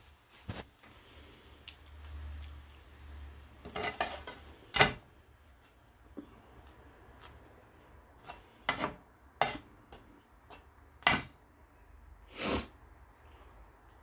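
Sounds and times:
bread frying: 0.0s - 11.4s
metal utensil scraping frying pan: 3.6s - 5.0s, 8.2s - 11.3s.

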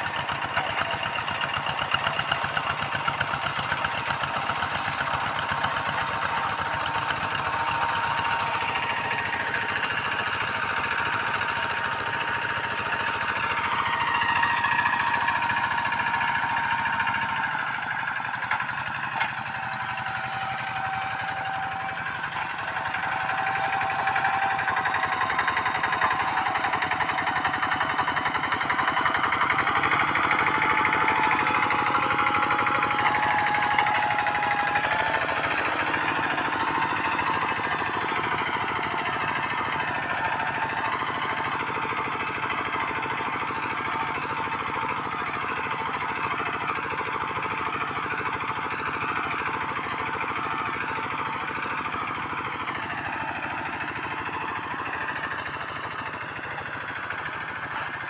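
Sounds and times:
diesel engine chugging: 0.0s - 58.0s
thin steady whine: 19.2s - 25.1s.

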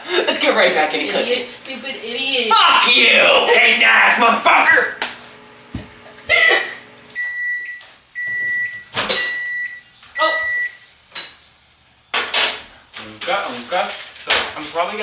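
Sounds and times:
microwave oven beeping: 2.8s - 11.5s.

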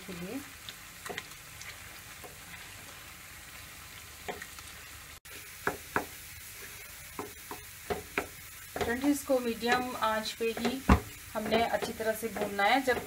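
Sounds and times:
lentils sizzling in a pan: 0.0s - 13.0s
spatula knocking against pan: 7.2s - 13.0s.

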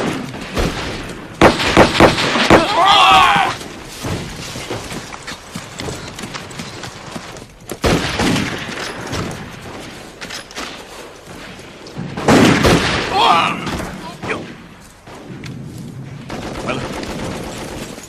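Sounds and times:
rifle and machine-gun shots: 0.0s - 2.8s, 7.8s - 13.2s, 14.2s - 18.0s.

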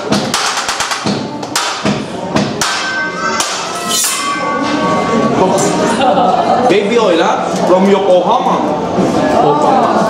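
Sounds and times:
metal spatula and knife clanking: 2.8s - 5.8s.

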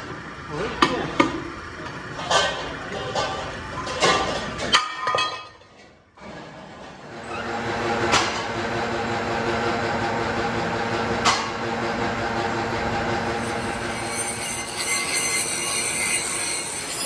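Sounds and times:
machine hum: 6.0s - 17.0s.

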